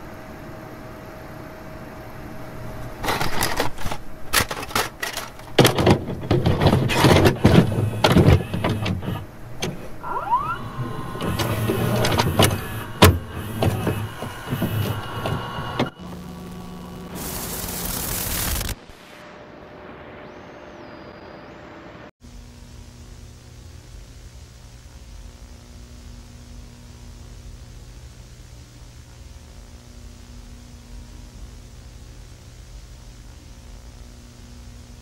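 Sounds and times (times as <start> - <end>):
low hum: 0.0 - 35.0
clicks knocks and scrapes: 3.0 - 9.9
loud even hiss: 7.6 - 21.1
rising squeak: 9.7 - 16.0.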